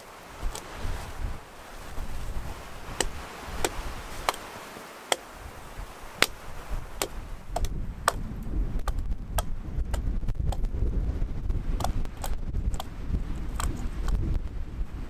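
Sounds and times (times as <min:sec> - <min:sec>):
branches cracking: 0:00.0 - 0:10.6
rustling branches: 0:00.0 - 0:15.0.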